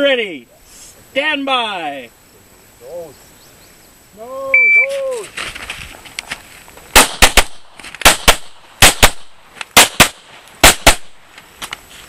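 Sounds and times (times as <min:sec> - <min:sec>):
pistol shots with echo: 0:07.0 - 0:11.2.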